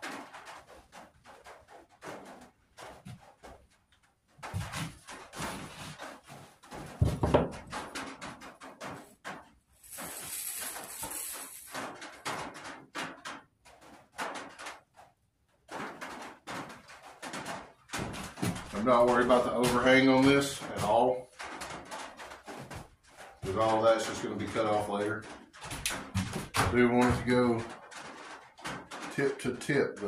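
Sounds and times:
tape rustling: 0:00.1 - 0:15.1.

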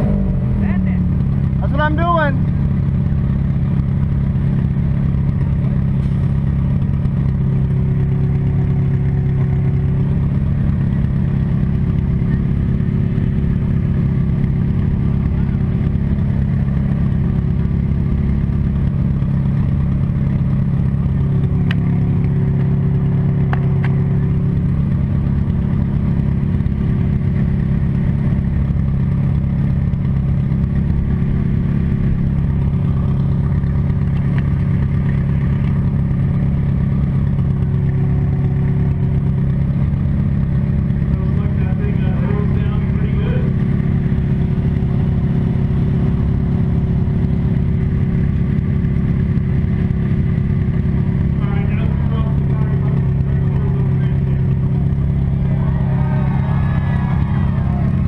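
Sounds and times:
car engine running steadily: 0:00.0 - 0:58.0.

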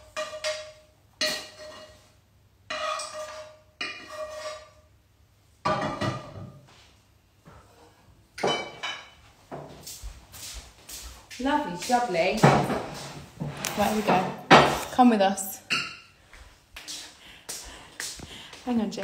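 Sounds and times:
ceramic dishes clattering: 0:05.6 - 0:06.5, 0:08.4 - 0:09.2, 0:15.7 - 0:16.1.

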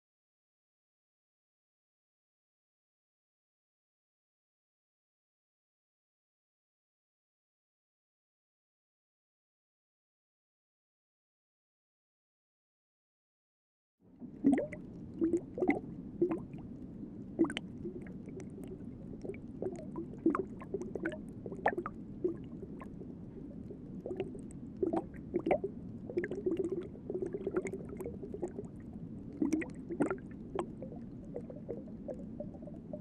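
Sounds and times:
underwater bubbling and gurgling: 0:14.1 - 0:33.0.

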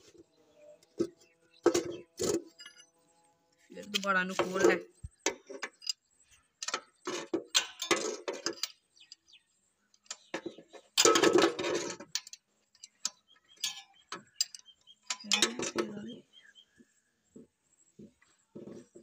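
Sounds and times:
spanner clinking on bolt: 0:05.3 - 0:06.0, 0:06.6 - 0:09.3, 0:10.0 - 0:16.1.

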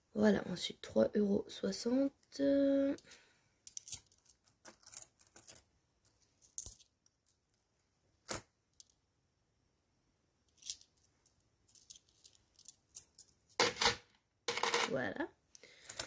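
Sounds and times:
coins clinking on plastic: 0:03.7 - 0:05.6, 0:11.7 - 0:15.0, 0:15.8 - 0:16.0.

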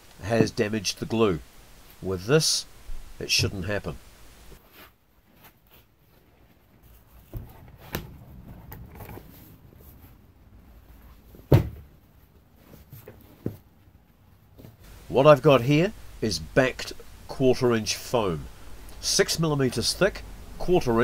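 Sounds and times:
knocks and light rustling: 0:05.3 - 0:10.2, 0:10.9 - 0:13.8.

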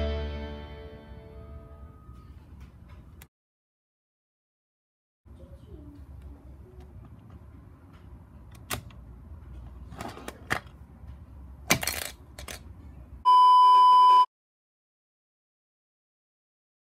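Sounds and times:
steady test tone beep: 0:13.2 - 0:14.3.

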